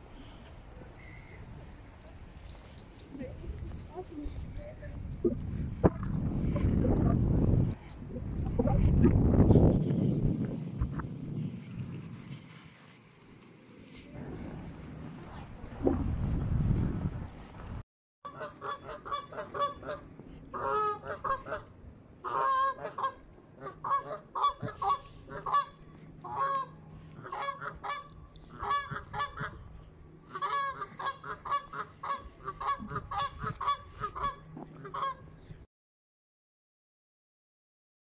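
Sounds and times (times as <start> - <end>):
geese honking: 18.3 - 29.6, 30.3 - 35.3.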